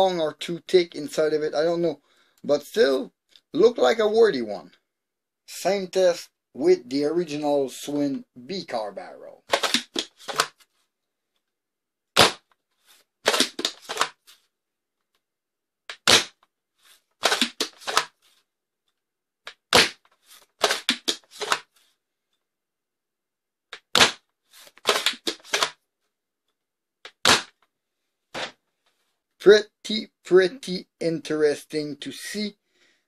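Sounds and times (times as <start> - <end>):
foam dart blaster shots: 12.2 - 12.4, 16.0 - 16.4, 19.7 - 20.0.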